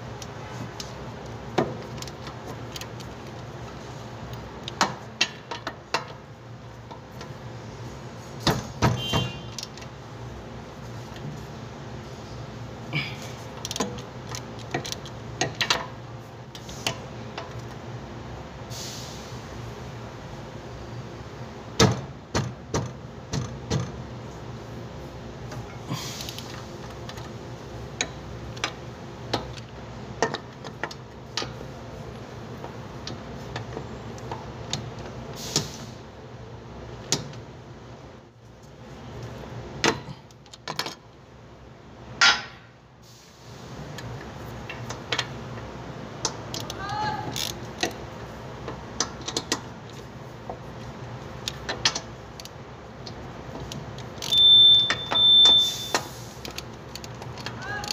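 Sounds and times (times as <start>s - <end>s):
socket wrench clicking on bolts: 13.5s - 15.9s, 46.2s - 48.0s, 53.6s - 57.9s.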